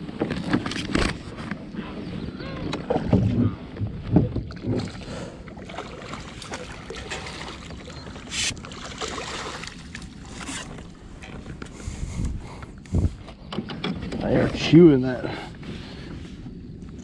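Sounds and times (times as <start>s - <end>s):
fish thrashing and splashing: 4.6s - 11.0s.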